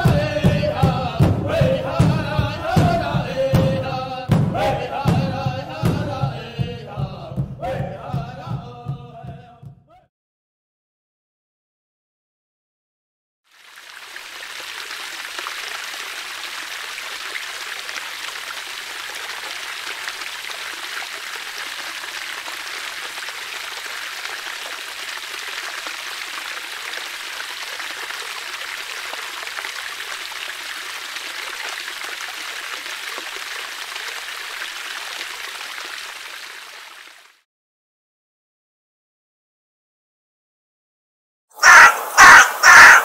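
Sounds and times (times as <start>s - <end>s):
flowing water rushing: 0.0s - 8.6s, 13.5s - 37.4s, 41.6s - 43.0s.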